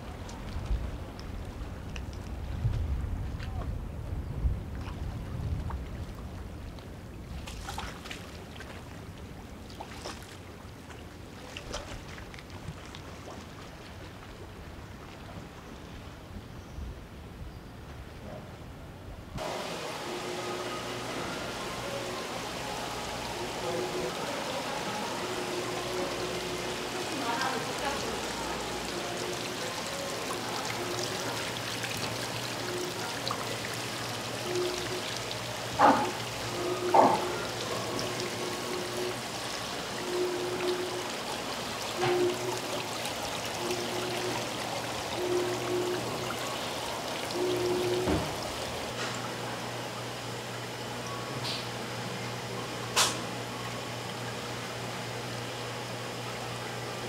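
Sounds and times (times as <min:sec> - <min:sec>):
wind rumbling on microphone: 0:00.0 - 0:07.5
harbour water washing: 0:00.0 - 0:16.4, 0:19.4 - 0:51.1.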